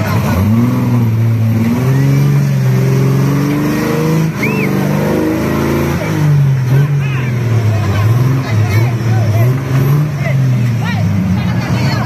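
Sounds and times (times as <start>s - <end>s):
buggy engine revving high: 0.0s - 12.0s.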